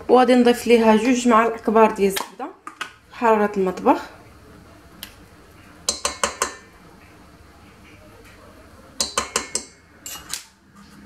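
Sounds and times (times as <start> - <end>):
metal spoon clinking on steel bowl: 5.9 - 6.7, 9.0 - 10.5.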